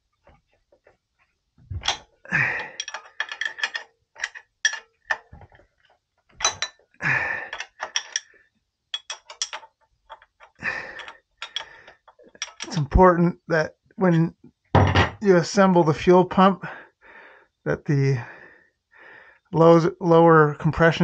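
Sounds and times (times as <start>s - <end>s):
metal clinks: 1.8s - 5.3s, 6.4s - 8.3s, 8.9s - 12.8s
metal fittings scraping: 1.8s - 5.6s, 6.4s - 12.9s.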